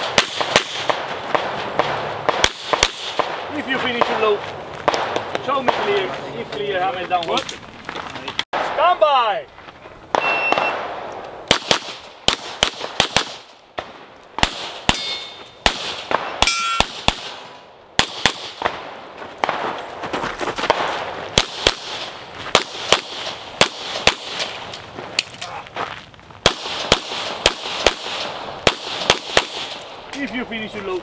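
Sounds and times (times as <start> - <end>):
rapid handgun fire: 0.0 - 6.2, 10.1 - 19.8, 20.7 - 24.7, 26.4 - 29.8
metallic clangs and ringing: 14.9 - 15.6, 16.4 - 16.9.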